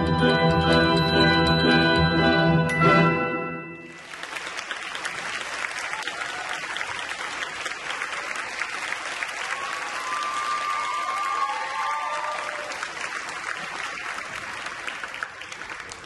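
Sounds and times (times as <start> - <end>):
music chord: 0.0 - 4.0
audience applauding: 3.9 - 16.0.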